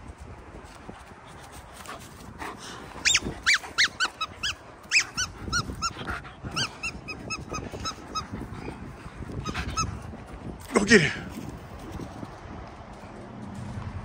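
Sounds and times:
dog yelping: 3.0 - 8.8.

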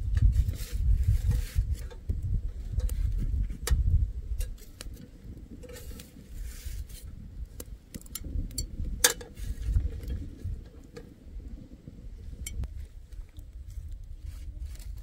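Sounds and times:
metal tongs clicking on grill: 7.6 - 9.3.

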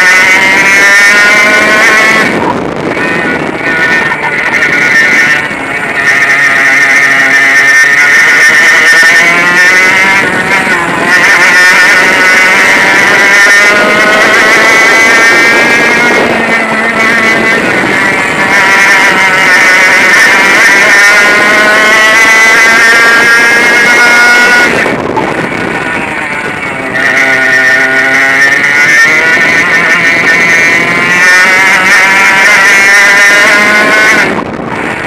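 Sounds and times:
kart engine revving: 0.0 - 35.0.

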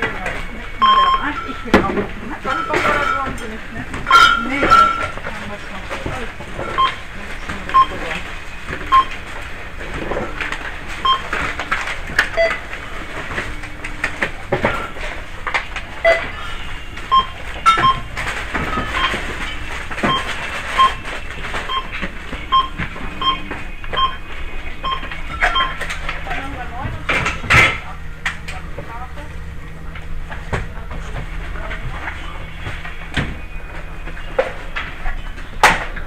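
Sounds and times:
barcode scanner beeping: 0.8 - 3.4, 6.6 - 8.2, 8.9 - 9.3, 11.0 - 12.7, 16.0 - 26.4.

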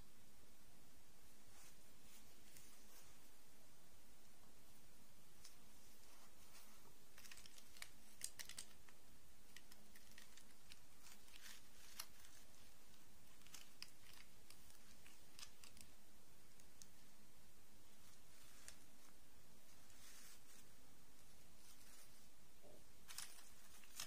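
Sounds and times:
plastic dolls clicking: 7.2 - 10.8.

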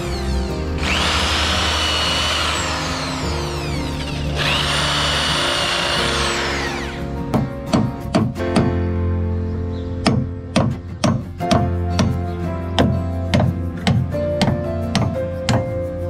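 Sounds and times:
electric drill boring into wood: 0.0 - 7.1.

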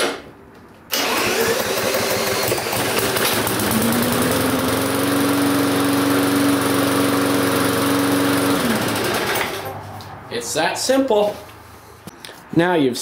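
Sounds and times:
cordless drill spinning: 0.9 - 9.6
lawn mower engine running: 0.9 - 10.1.

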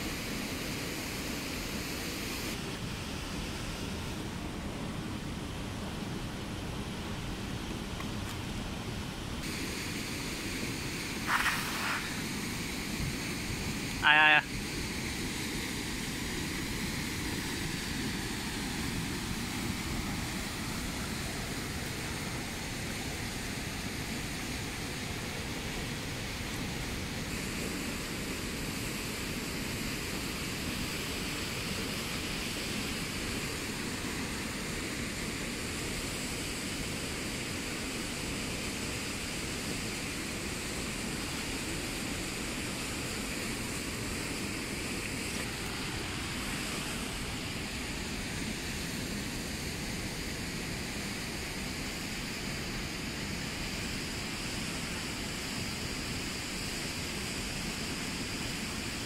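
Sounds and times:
river rushing over riffles: 0.0 - 59.0.

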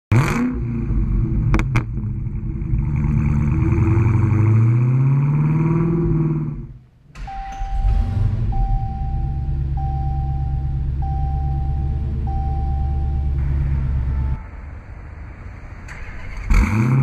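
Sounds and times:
car engine starting and revving: 0.1 - 17.0
car engine idling: 0.6 - 17.0
electronic chime tone: 7.2 - 14.5.

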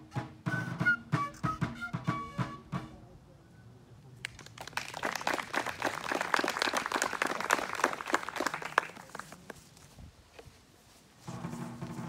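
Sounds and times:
audience applauding: 4.2 - 9.5.

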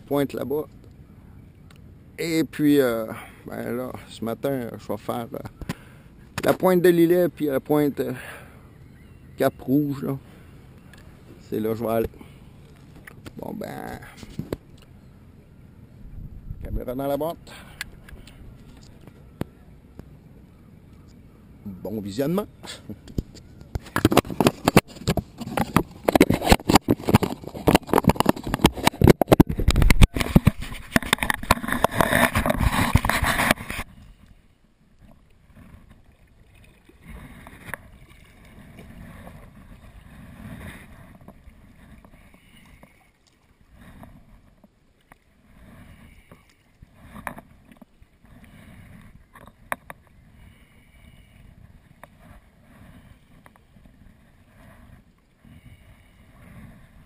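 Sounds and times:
kayak paddle strokes in water: 23.1 - 57.0
rubbing and knocking on microphone: 23.2 - 33.9.

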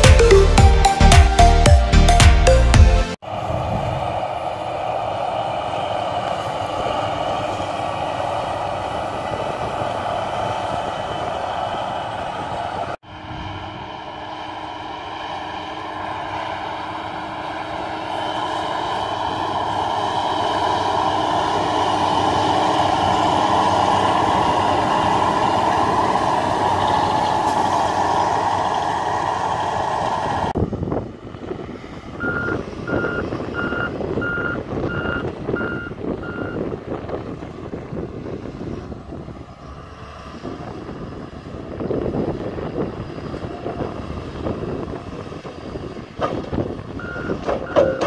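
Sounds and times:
truck engine and spinning beaters: 0.0 - 48.0
backup alarm beeping: 32.2 - 36.6.

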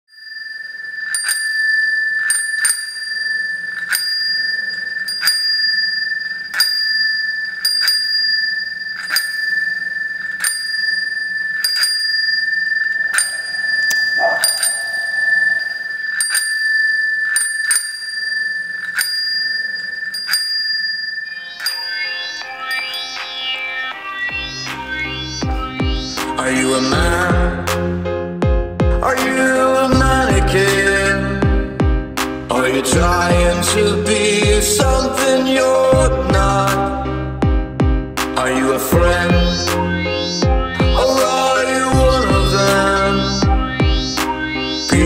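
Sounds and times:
high-pitched ringing tone: 0.0 - 27.6, 38.6 - 45.0
low swell: 12.3 - 16.4.

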